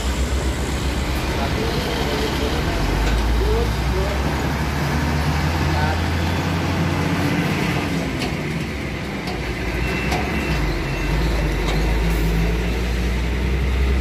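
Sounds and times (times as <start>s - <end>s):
diesel truck engine droning: 0.0s - 14.0s.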